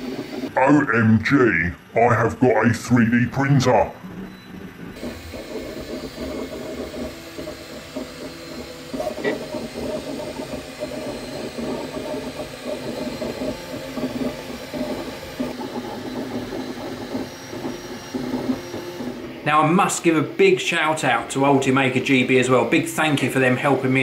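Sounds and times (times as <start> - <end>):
cooling fans hissing: 0.0 - 24.0
stepper motors humming: 0.0 - 24.0.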